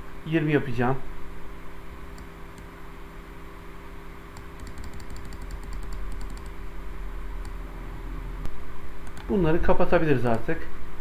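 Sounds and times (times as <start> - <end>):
low electrical hum: 0.0 - 11.0
keyboard keys clicking: 4.4 - 6.6, 9.0 - 9.4.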